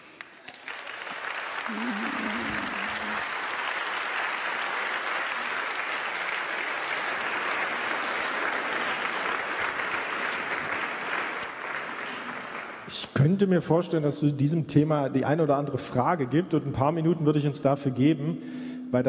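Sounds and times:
crowd applauding: 0.0s - 12.9s.

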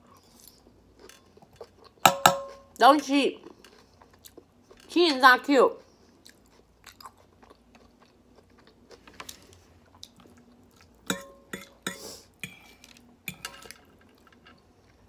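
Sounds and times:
person chewing salad: 0.0s - 2.7s, 3.4s - 4.9s, 5.8s - 15.0s
fork clinking on plate: 2.0s - 2.7s, 11.1s - 12.0s
plate ringing: 2.1s - 2.7s.

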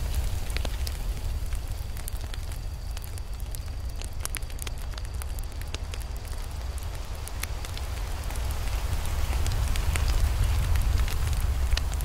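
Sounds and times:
campfire crackling and popping: 0.0s - 12.0s.

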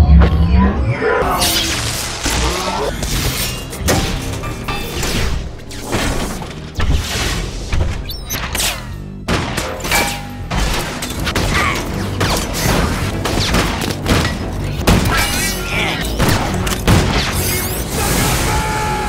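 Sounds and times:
action movie music score: 0.0s - 19.0s
booms crashes and metal impacts: 9.2s - 15.4s.

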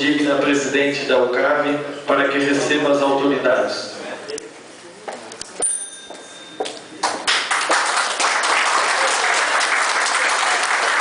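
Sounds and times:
audience clapping: 7.0s - 11.0s.

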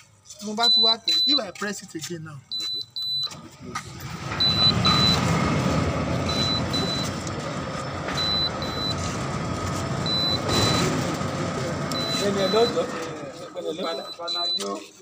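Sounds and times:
short high warning beeps: 0.6s - 1.6s, 2.5s - 3.4s, 6.3s - 7.2s, 8.2s - 9.1s, 10.0s - 10.9s, 11.9s - 12.9s, 13.8s - 15.0s
gate motor humming: 3.9s - 14.0s.

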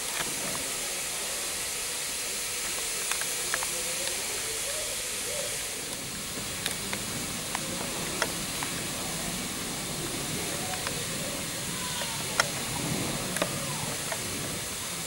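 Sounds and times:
steam hissing: 0.0s - 15.0s
faint clicks: 5.9s - 9.2s, 10.5s - 14.5s.

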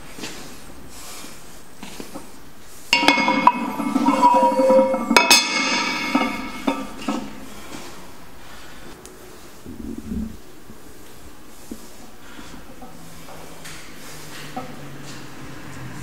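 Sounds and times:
metal scraping: 2.9s - 8.0s
weight plates clanking: 2.9s - 8.0s.

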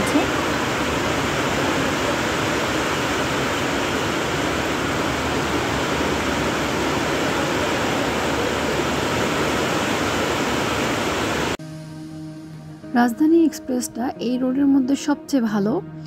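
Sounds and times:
heavy rain on tracks and platform: 0.0s - 11.6s.

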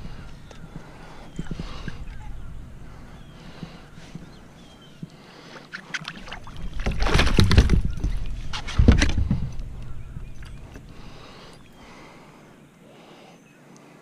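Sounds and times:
fish flopping on deck: 0.0s - 12.2s
fish splashing at the surface: 5.7s - 8.2s.

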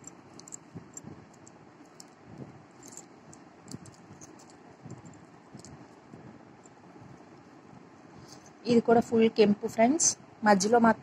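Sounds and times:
earrings clicking and clinking: 0.0s - 7.5s, 8.2s - 8.6s.

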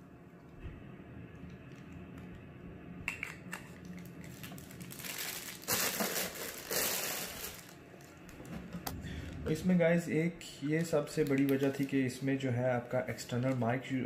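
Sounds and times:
plastic wrapping crinkling: 3.6s - 8.2s, 10.6s - 12.2s, 13.0s - 13.8s.

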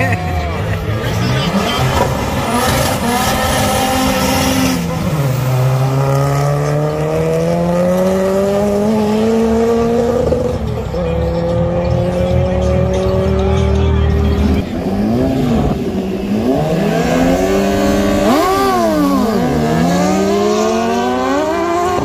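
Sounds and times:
drag car engine revving: 11.2s - 22.0s.

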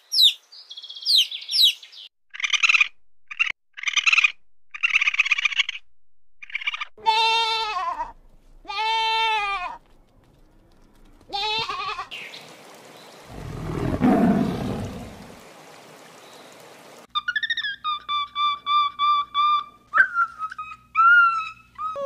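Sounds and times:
goat bleating: 7.0s - 9.8s, 11.3s - 12.1s.

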